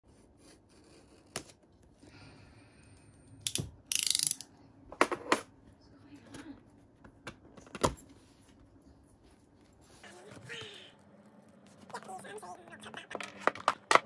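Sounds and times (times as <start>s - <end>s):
utility knife blade ratcheting: 3.5s - 4.4s.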